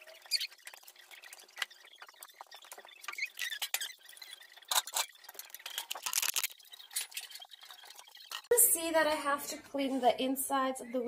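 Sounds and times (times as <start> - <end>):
household items rustling and clicking: 0.2 - 9.5
clatter of items: 4.6 - 7.5.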